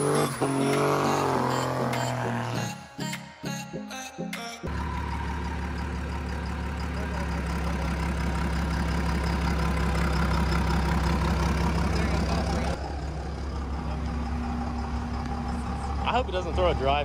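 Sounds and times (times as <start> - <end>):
diesel engine idling: 4.7 - 17.0.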